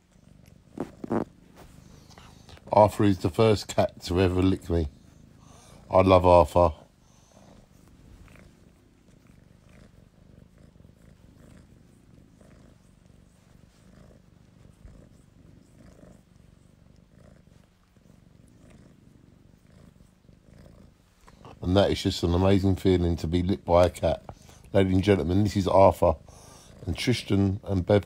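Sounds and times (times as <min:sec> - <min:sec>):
cat purring: 0:00.0 - 0:28.0.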